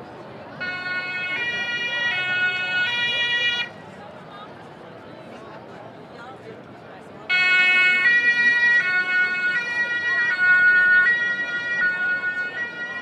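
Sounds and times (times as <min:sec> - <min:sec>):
two-tone emergency siren: 0:00.6 - 0:03.8, 0:07.3 - 0:13.0.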